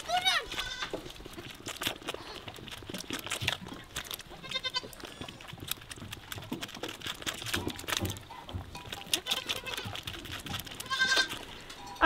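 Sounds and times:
lamb sucking at a bottle: 0.0s - 12.0s
lamb bleating: 0.1s - 1.0s, 4.4s - 5.0s, 9.1s - 10.0s, 10.8s - 11.4s.

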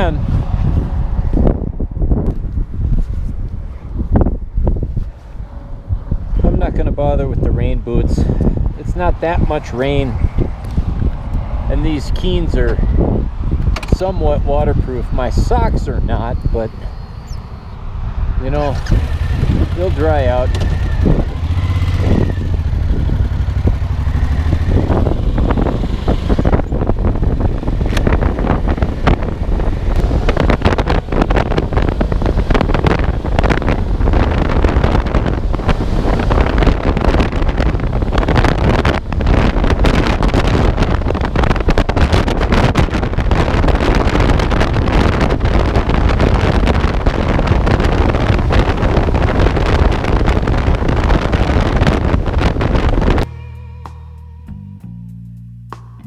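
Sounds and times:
wind buffeting microphone: 0.0s - 53.3s
motorcycle engine running: 16.9s - 55.0s.

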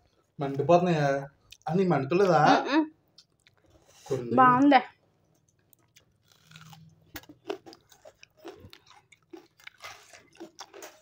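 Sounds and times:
wet chewing: 3.1s - 4.0s, 5.1s - 11.0s
onion crunching: 5.4s - 11.0s.

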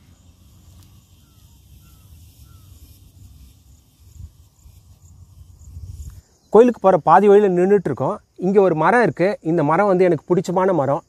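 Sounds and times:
faint falling bird calls: 0.0s - 3.0s.

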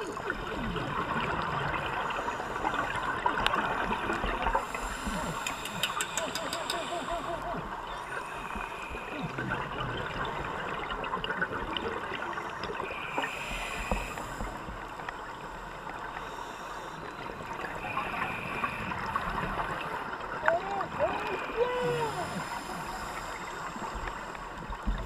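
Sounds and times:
underwater exhaled bubbles: 0.0s - 16.4s
constant fine crackle: 0.0s - 25.0s
scuba regulator breathing: 4.5s - 9.4s, 13.0s - 14.9s, 21.3s - 24.6s.

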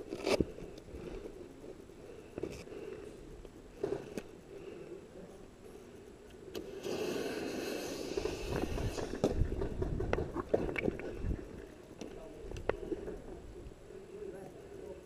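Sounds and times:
rushing hiss: 6.6s - 9.3s.

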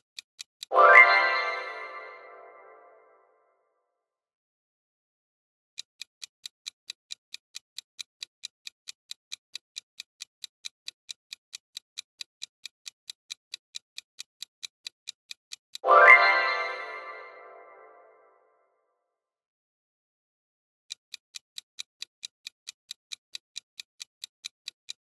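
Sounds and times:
clock ticking quickly: 0.0s - 1.8s, 5.8s - 17.3s, 20.9s - 25.0s.

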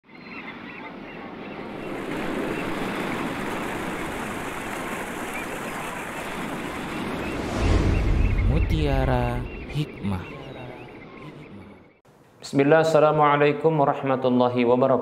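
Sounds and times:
ocean waves washing: 0.3s - 12.0s.

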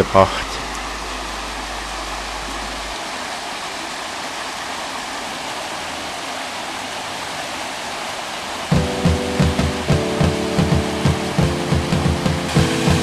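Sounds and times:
flowing water rushing: 0.0s - 13.0s
music with a beat: 8.7s - 13.0s.

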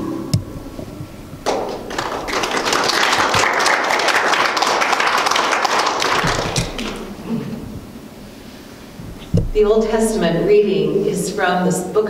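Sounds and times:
congregation applauding: 1.4s - 7.2s.

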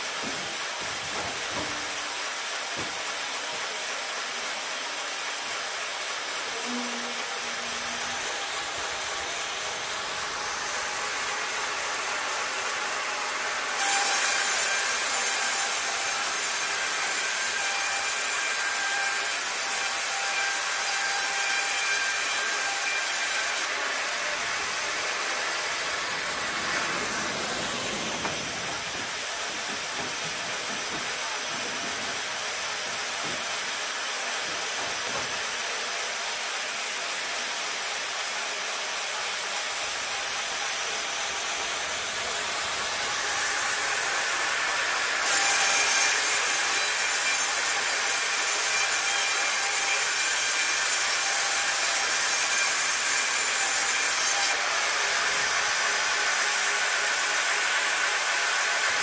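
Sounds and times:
sawmill machine sawing boards: 0.0s - 59.0s
steady machine whine: 24.4s - 30.0s.

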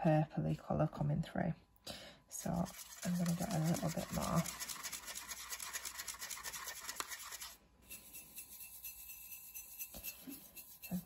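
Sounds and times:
brush on ceramic plate: 2.4s - 11.0s
brush scrubbing in paint pan: 2.4s - 11.0s.

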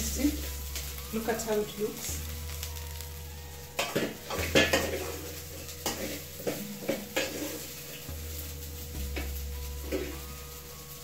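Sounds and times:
frying sizzle: 0.0s - 11.0s
metal spatula scraping a pot: 3.7s - 10.7s.

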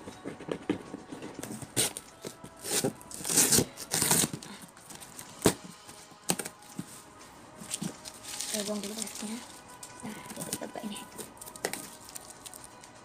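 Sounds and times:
tape ripping off cardboard: 1.5s - 6.5s
cardboard rustling: 7.6s - 9.5s.

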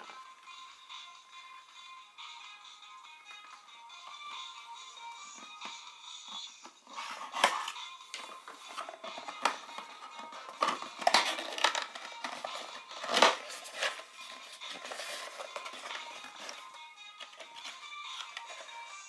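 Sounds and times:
background music: 0.0s - 19.0s
cardboard tearing and scraping: 13.0s - 14.1s.

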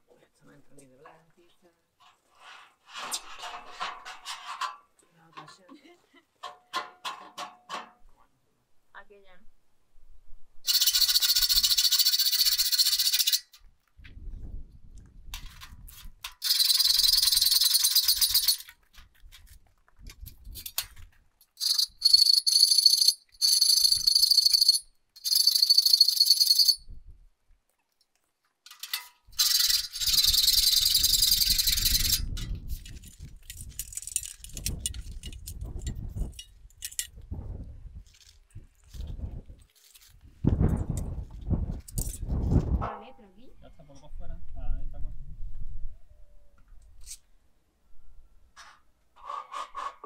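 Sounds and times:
steel studs knocking and scraping: 2.0s - 5.8s, 6.4s - 8.1s, 15.3s - 25.8s, 28.6s - 37.2s.

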